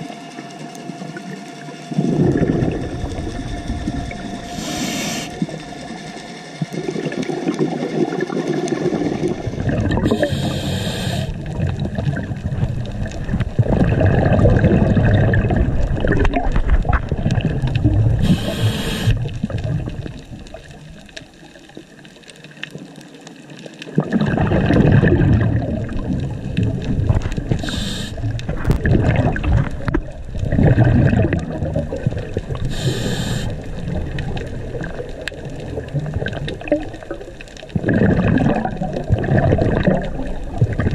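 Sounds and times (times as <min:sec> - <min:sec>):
gurgling exhaust bubbles: 0:02.0 - 0:05.6, 0:06.7 - 0:21.1, 0:23.9 - 0:40.9
hissing regulator inhales: 0:04.4 - 0:05.6, 0:10.0 - 0:11.4, 0:18.2 - 0:19.2, 0:27.5 - 0:28.3, 0:32.7 - 0:33.7.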